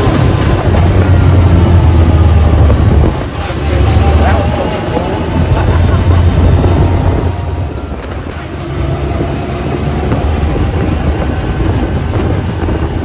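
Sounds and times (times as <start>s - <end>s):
off-road vehicle engine rumble: 0.0s - 13.0s
road and wind noise: 0.0s - 13.0s.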